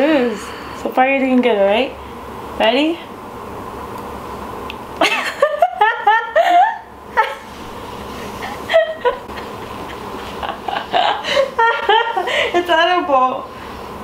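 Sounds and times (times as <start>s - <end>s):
woman laughing: 5.0s - 7.5s, 8.3s - 12.8s.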